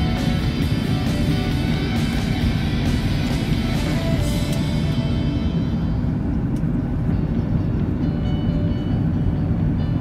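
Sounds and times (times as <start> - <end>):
airliner cabin rumble: 0.0 - 10.0.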